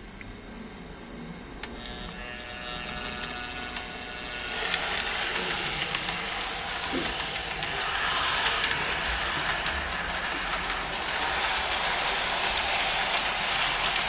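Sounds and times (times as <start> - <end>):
electric motor hum with whine: 1.7 - 10.9
model train wheels rattling: 2.1 - 14.0.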